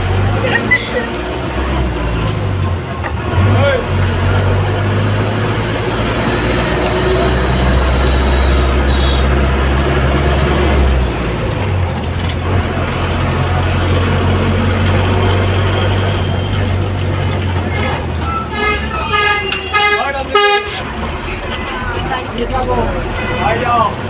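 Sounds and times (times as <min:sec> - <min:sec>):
bus engine drone: 0:00.0 - 0:24.0
road noise: 0:00.0 - 0:24.0.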